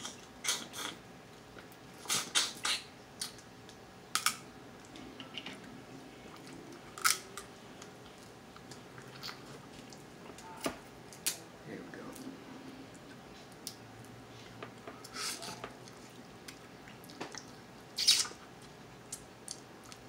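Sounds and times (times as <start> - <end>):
sucking and smacking mouth: 2.0 - 3.5, 15.0 - 18.5
crab shell cracking: 7.0 - 7.5.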